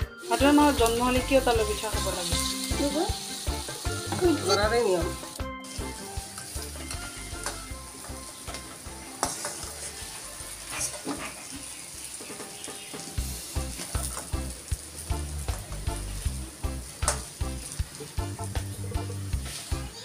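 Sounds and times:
fritters sizzling in hot oil: 0.0 - 20.0
spatula scraping a wok: 1.7 - 14.5.

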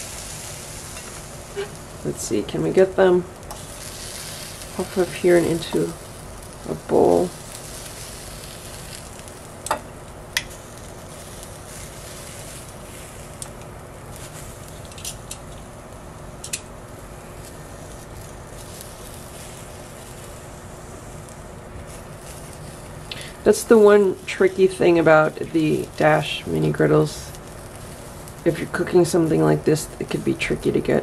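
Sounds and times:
pepper sizzling on griddle: 0.0 - 31.0.

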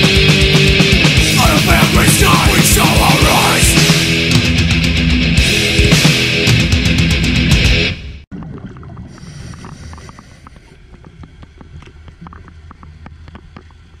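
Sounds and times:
heavy rock music: 0.0 - 8.2
underwater low rumble: 8.3 - 14.0
sharp underwater clicks: 8.4 - 14.0.

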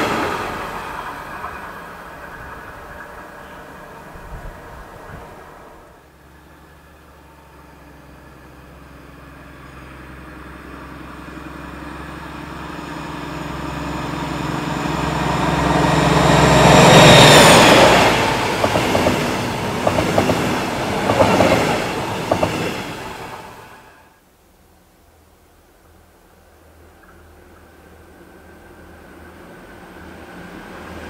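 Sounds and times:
locomotive engine drone: 0.0 - 24.1, 26.5 - 31.0
train wheels clattering over rail joints: 16.9 - 23.8.

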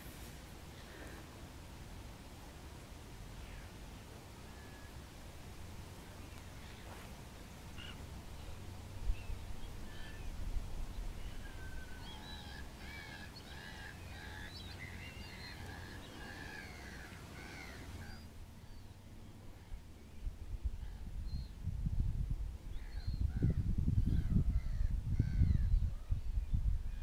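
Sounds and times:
gulls calling: 11.2 - 18.3.

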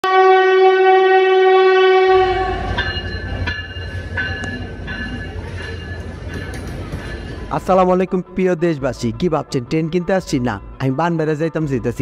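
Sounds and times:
train horn blast: 0.0 - 2.8
low train rumble: 0.0 - 12.0.

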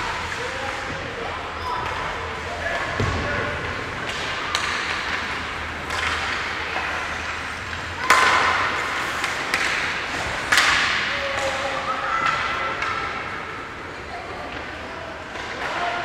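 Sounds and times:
hockey sticks striking puck: 0.0 - 13.4, 14.5 - 16.0
puck hitting the boards: 2.7 - 13.3.

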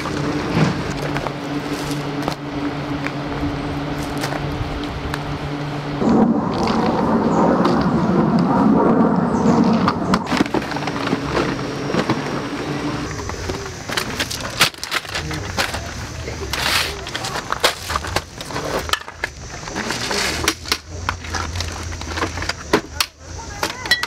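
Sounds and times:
camping gear clattering: 10.2 - 24.0.

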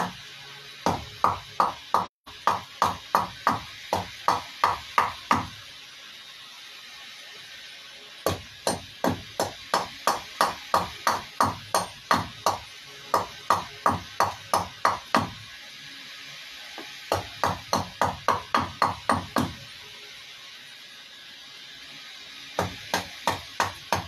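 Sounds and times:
carving tool knocking on wood: 0.8 - 5.5, 8.2 - 15.4, 17.1 - 19.6, 22.6 - 24.0.

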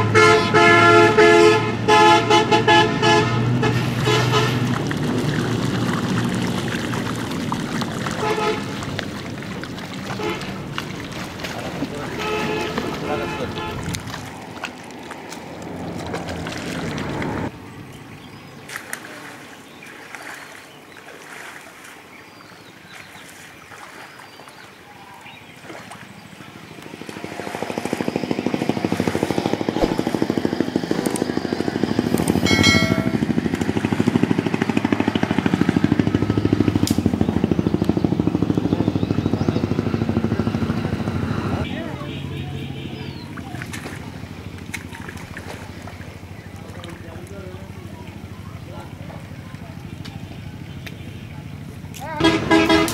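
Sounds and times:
engine running with fast pulse: 26.8 - 41.7.

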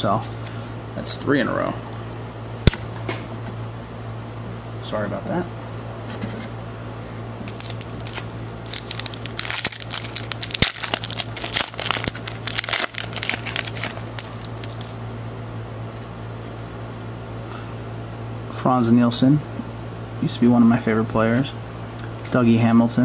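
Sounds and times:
foil wrapper tearing and crinkling: 7.4 - 15.0.

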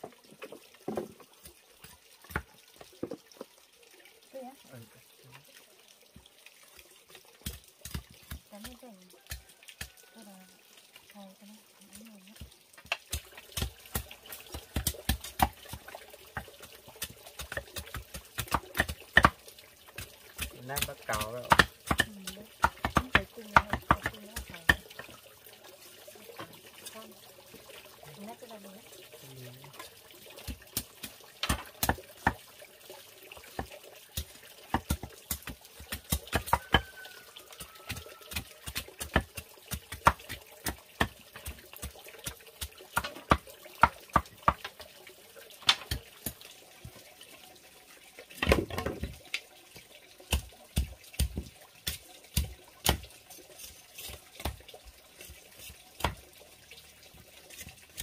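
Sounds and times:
blade chopping bamboo: 12.4 - 19.4, 20.0 - 25.0, 30.5 - 32.4, 33.6 - 36.9, 37.6 - 44.8, 50.3 - 54.6.

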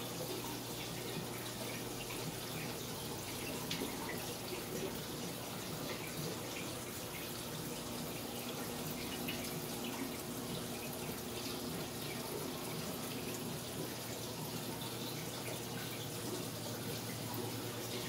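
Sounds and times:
aquarium water trickling: 0.0 - 18.0.

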